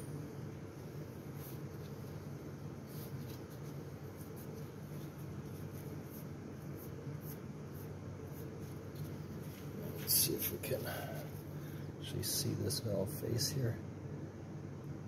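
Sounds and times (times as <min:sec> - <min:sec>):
steady low hum: 0:00.0 - 0:15.0
paper towel rustling: 0:00.7 - 0:11.5.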